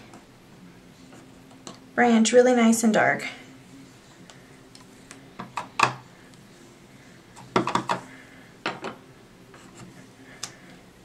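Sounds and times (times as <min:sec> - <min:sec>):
plastic knocking on tabletop: 0:07.5 - 0:08.0.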